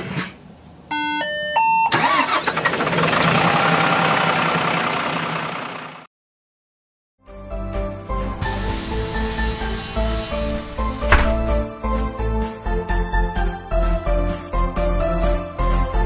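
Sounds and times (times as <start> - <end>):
music: 7.2 - 16.0.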